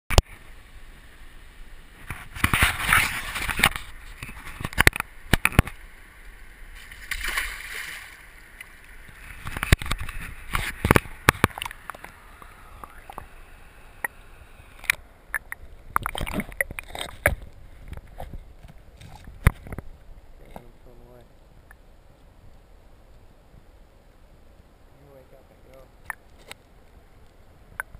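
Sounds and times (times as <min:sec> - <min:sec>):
river water sloshing and gurgling: 0:01.9 - 0:20.8
water splashing: 0:01.9 - 0:20.9
camera housing knocking on rocks: 0:09.4 - 0:12.1.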